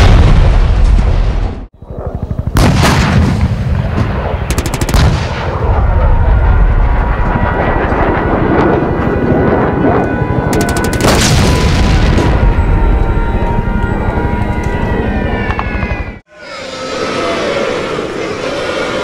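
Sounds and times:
heavy blast: 0:02.5 - 0:09.7, 0:10.5 - 0:13.0
rapid gunfire: 0:04.4 - 0:05.4, 0:10.5 - 0:11.6.

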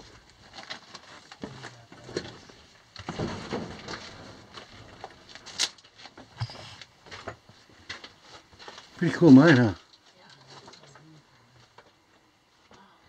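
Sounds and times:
footsteps crunching on rock rubble: 0:06.9 - 0:09.9.

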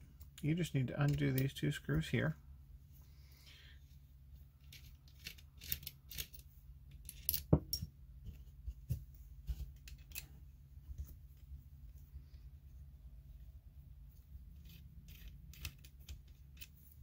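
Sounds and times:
metal keys clicking and tapping: 0:04.6 - 0:07.9.

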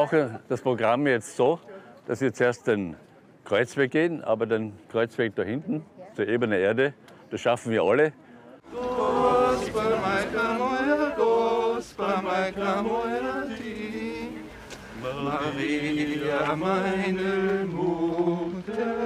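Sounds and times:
voices singing a hymn: 0:08.6 - 0:19.0.

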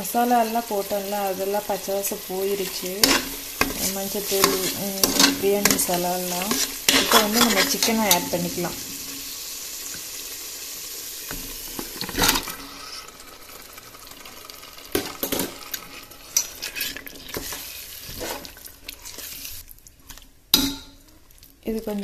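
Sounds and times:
masala sizzling in a pot: 0:00.0 - 0:22.0
steel spoon scraping and clinking pot: 0:02.9 - 0:08.5, 0:15.3 - 0:18.4.

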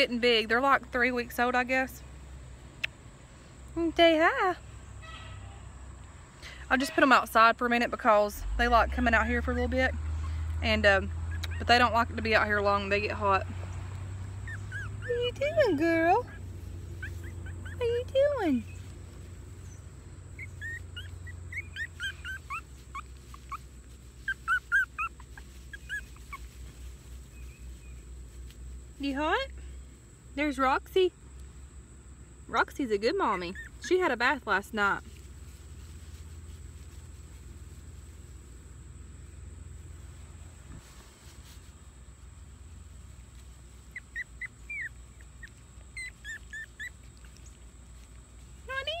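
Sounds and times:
puppies whimpering: 0:14.4 - 0:18.9, 0:19.7 - 0:26.7, 0:33.3 - 0:33.9, 0:43.9 - 0:47.7.

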